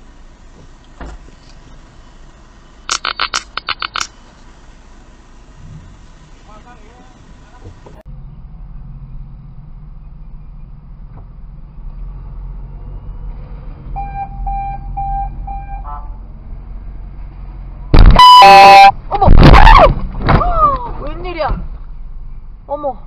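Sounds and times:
car engine humming: 0.0 - 19.1
short electronic beeps: 14.0 - 15.8, 18.0 - 18.9
car horn blasting: 14.0 - 16.2, 18.0 - 19.0.

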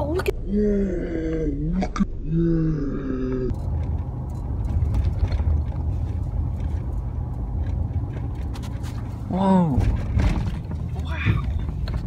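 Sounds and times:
truck cabin road rumble: 0.0 - 0.4, 3.4 - 12.0.

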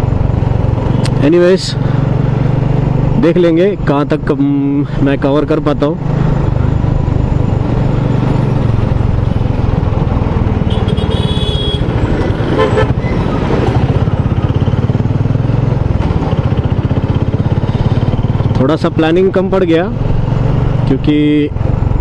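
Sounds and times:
motorcycle engine running: 0.0 - 22.0
vehicle horn: 10.6 - 13.3.

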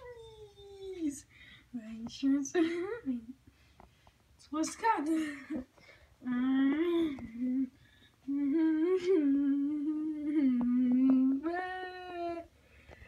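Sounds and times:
person humming: 6.2 - 7.7, 8.3 - 12.5.

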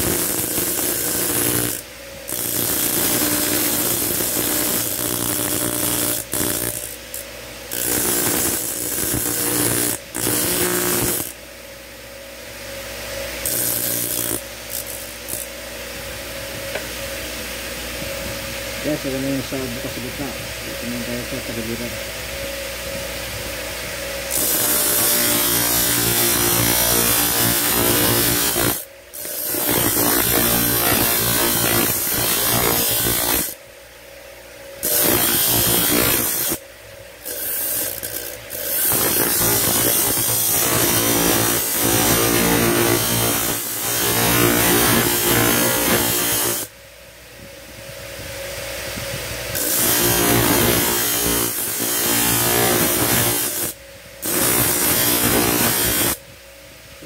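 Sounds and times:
grinder motor hum: 0.0 - 11.4, 13.4 - 15.6, 22.8 - 33.6, 34.8 - 36.6, 37.2 - 46.7, 49.5 - 56.2
steel grinding on wheel: 13.4 - 15.5, 24.3 - 33.5, 34.8 - 36.6, 37.2 - 46.6, 49.5 - 56.2.

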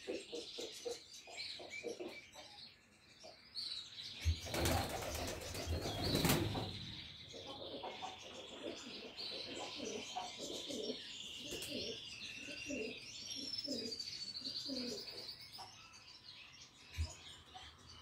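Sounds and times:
pigeons cooing: 1.6 - 2.3, 4.4 - 15.2.

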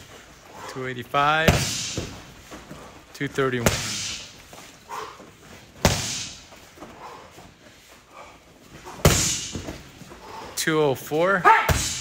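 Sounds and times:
kicks slamming padded vest: 9.0 - 9.8.

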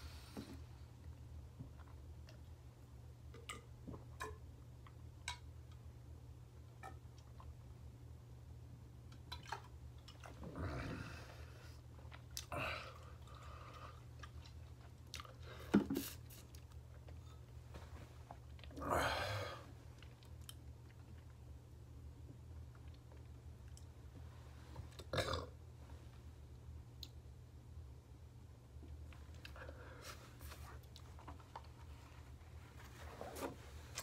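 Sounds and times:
man swallowing and chewing: 9.1 - 17.5.

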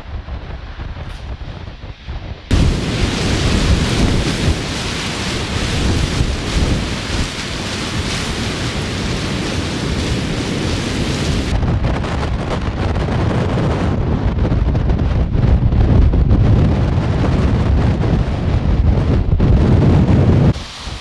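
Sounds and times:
gusting wind on microphone: 0.0 - 21.0.

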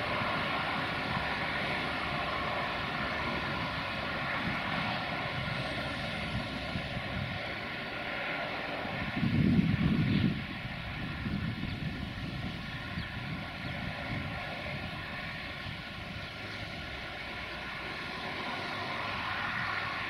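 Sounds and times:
diesel locomotive engine drone: 0.0 - 20.0.

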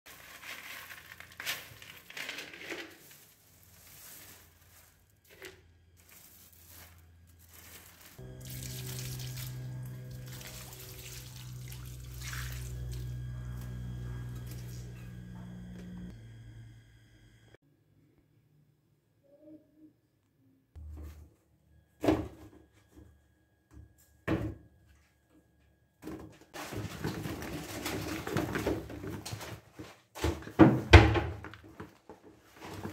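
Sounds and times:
rustling clatter of snacks: 0.1 - 8.2, 26.6 - 30.1
hand scraping pebbles: 0.1 - 9.0
pebbles rattling into pot: 0.1 - 10.4.

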